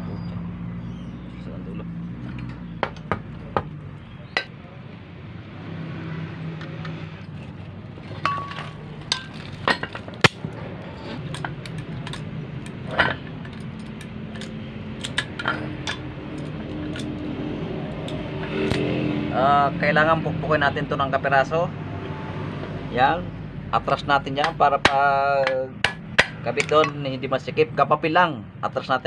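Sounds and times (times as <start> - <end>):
metal tools clinking on metal: 6.7 - 17.3, 26.5 - 27.1.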